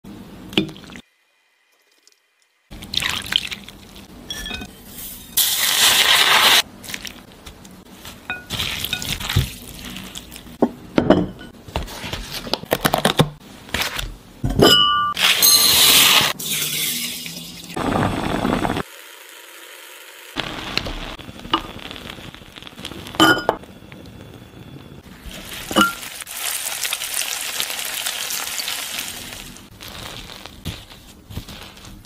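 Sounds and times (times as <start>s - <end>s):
hand mixing wet salad: 6.8s - 10.5s.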